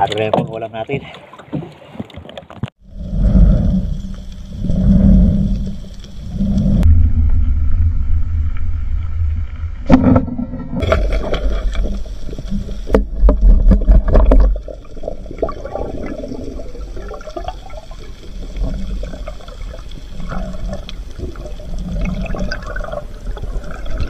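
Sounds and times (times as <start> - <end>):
water rushing underwater: 2.4 - 24.0
clicks underwater: 9.8 - 16.4.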